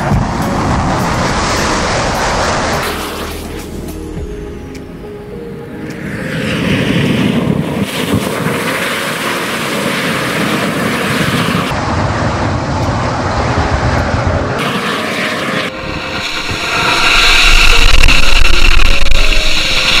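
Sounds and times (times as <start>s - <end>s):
sparkler jet rushing hiss: 14.6s - 20.0s.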